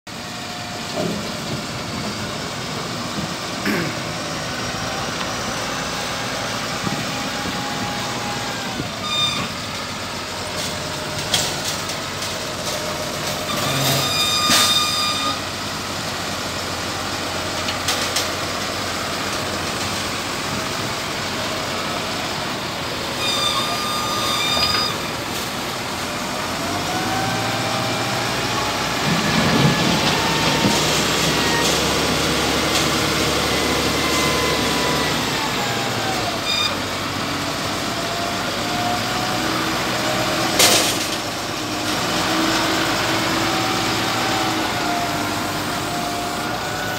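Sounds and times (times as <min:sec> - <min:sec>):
loader diesel engine revving: 0:00.1 - 0:46.9
reversing alarm beeps: 0:13.5 - 0:15.4, 0:23.2 - 0:25.1, 0:36.5 - 0:36.8.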